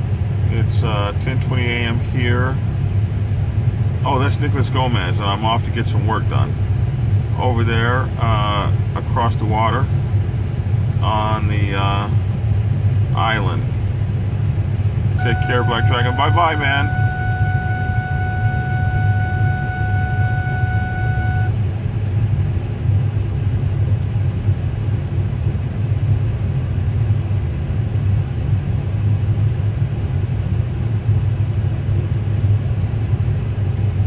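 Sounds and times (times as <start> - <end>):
car driving rumble from inside: 13.6 - 21.8
steady high tone: 15.2 - 21.6.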